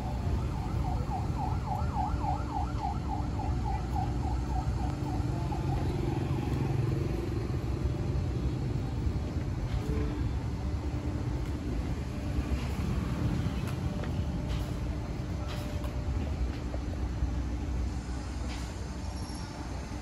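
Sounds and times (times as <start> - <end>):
distant siren wailing: 0.0 - 8.3
street traffic rumble: 0.0 - 20.0.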